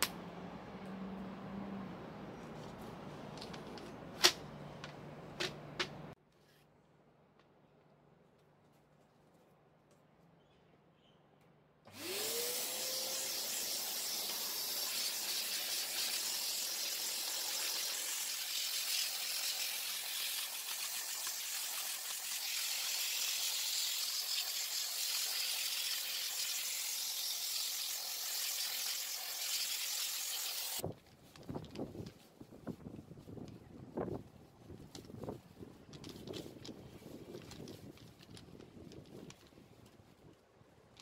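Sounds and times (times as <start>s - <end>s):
motor whining up: 11.9s - 30.8s.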